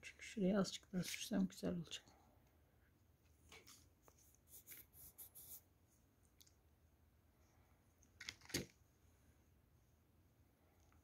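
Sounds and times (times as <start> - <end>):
soft rustling of yarn: 0.0 - 8.0.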